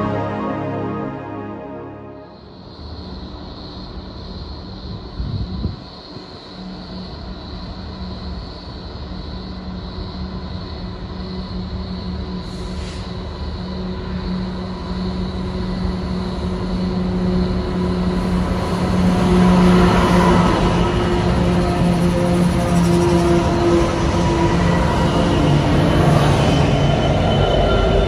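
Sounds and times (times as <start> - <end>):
diesel locomotive engine drone: 0.0 - 28.0.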